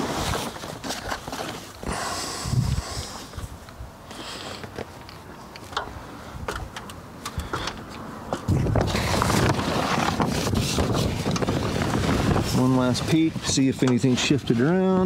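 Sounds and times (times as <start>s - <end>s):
wind buffeting microphone: 2.4s - 4.0s, 8.4s - 15.0s.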